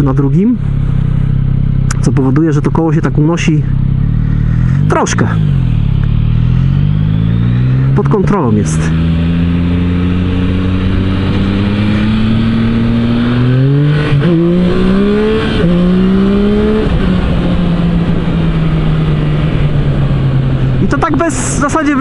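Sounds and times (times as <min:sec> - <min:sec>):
motorcycle engine accelerating: 0:00.0 - 0:22.0
wind noise: 0:08.9 - 0:22.0.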